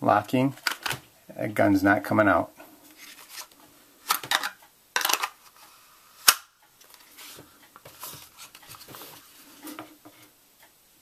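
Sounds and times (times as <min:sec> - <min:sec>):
soft rubbing and handling: 0:02.8 - 0:03.8, 0:06.8 - 0:10.4.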